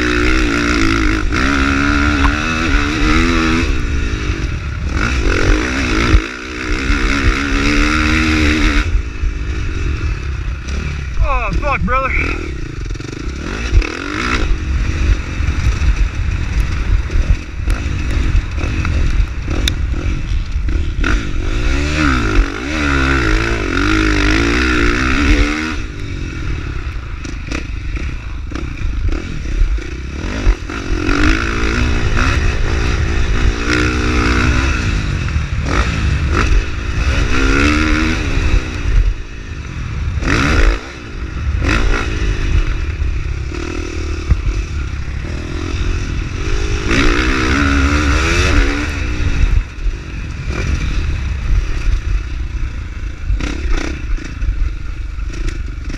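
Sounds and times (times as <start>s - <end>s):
motorbike engine revving: 0.0s - 55.9s
heavy low rumble: 8.9s - 22.6s.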